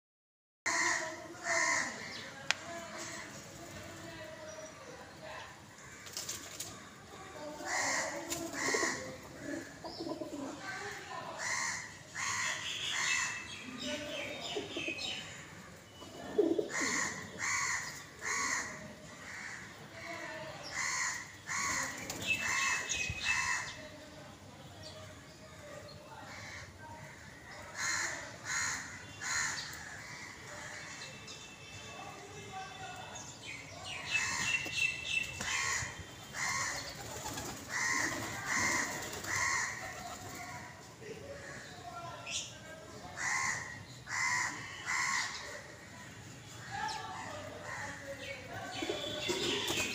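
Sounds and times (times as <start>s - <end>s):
birds calling: 7.6s - 20.0s, 20.6s - 23.9s, 33.0s - 40.8s
pigeon cooing: 8.0s - 10.6s, 16.1s - 17.3s.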